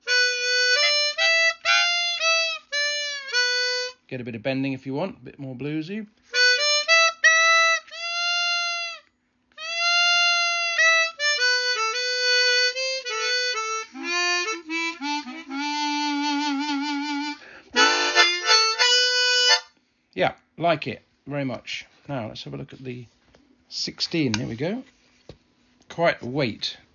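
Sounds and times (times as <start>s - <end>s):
bluesy harmonica playing: 0.0s - 4.1s, 6.2s - 19.8s.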